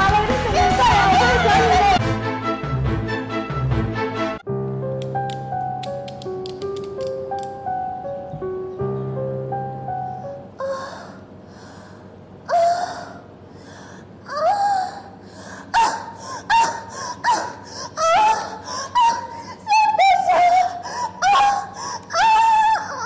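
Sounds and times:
woman crying out: 14.3 - 23.0.

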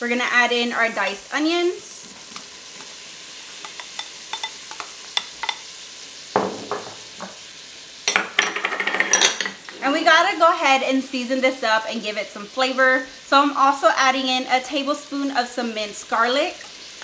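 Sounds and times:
onions sizzling in butter: 0.0 - 17.0
spoon and glass bowl clinking: 3.6 - 5.6.

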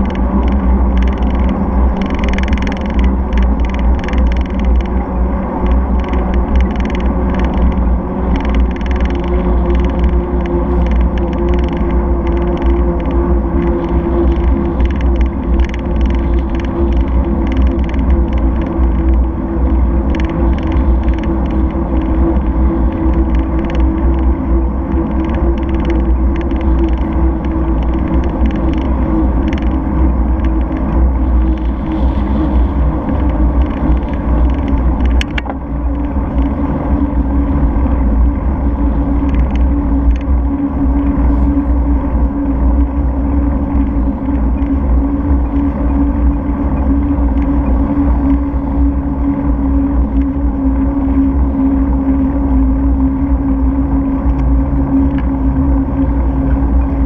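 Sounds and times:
light ticks and rattles: 0.0 - 51.5, 54.0 - 57.0
road vibration rumble: 0.0 - 57.0.

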